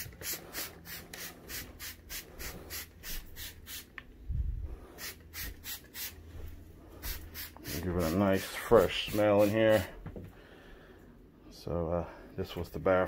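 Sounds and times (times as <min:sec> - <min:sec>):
spray bottle squirting: 0:00.0 - 0:04.0, 0:05.0 - 0:06.2, 0:07.0 - 0:09.8.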